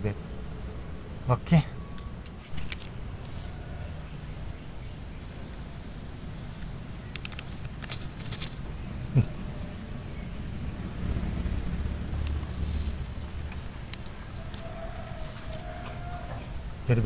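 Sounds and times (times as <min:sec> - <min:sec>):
low outdoor rumble: 0:08.0 - 0:17.0.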